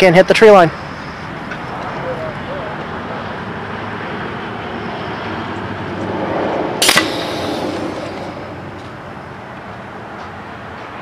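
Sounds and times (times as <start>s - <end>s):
outdoor background noise: 0.0s - 11.0s
pneumatic launcher shot: 6.8s - 9.0s.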